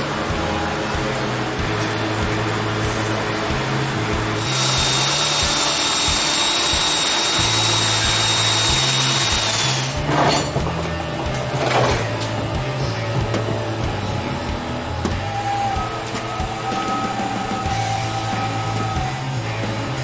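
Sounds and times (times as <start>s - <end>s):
background music: 0.0s - 20.0s
electric shear cutting metal: 2.7s - 12.8s.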